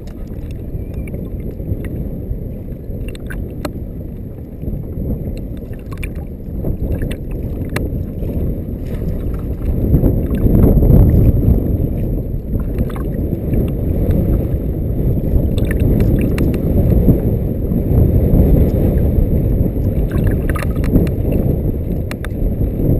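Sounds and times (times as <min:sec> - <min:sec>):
wind buffeting microphone: 0:00.0 - 0:22.9
water slapping against float tube: 0:03.0 - 0:03.8, 0:05.3 - 0:17.3, 0:19.8 - 0:22.6
faint sharp ticks: 0:22.0 - 0:22.4.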